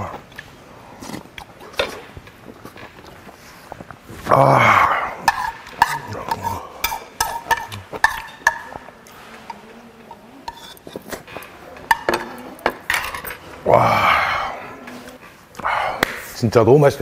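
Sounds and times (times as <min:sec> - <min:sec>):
spoon scraping ceramic bowl: 0:05.2 - 0:13.5.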